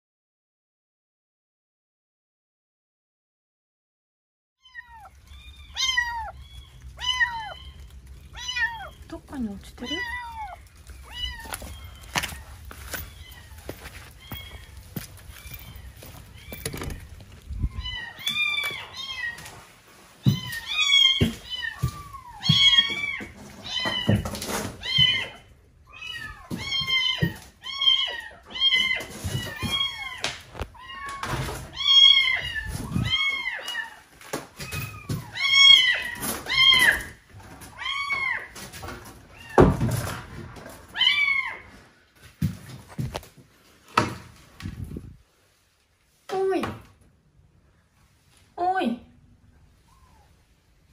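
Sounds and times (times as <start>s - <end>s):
kitten meowing: 4.6s - 9.1s, 9.8s - 12.6s.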